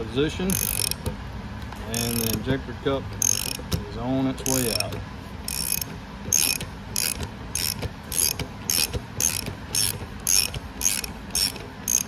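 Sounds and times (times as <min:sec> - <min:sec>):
ratchet clicking: 0:00.5 - 0:01.2, 0:01.9 - 0:02.5, 0:03.2 - 0:03.8, 0:04.4 - 0:12.0.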